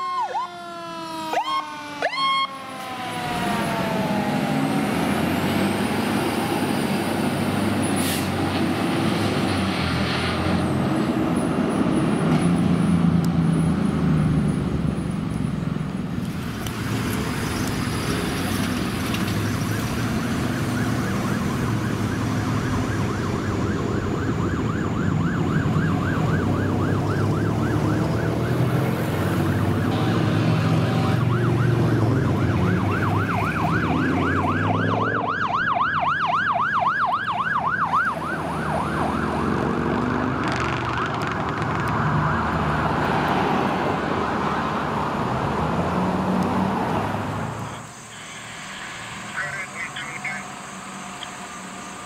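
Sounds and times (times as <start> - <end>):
electronic siren yelping: 0.0 - 4.9, 19.6 - 30.0, 31.0 - 43.0
fire engine diesel engine: 0.0 - 52.0.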